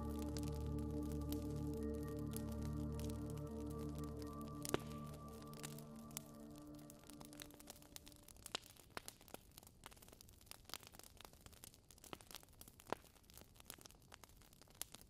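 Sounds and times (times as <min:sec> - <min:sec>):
quiet hiss: 0:00.0 - 0:09.0.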